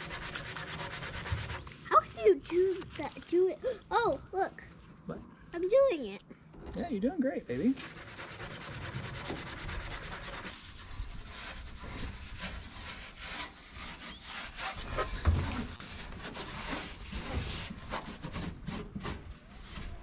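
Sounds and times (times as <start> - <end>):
scrubbing metal with soap pad: 0.0 - 3.1, 7.7 - 20.0.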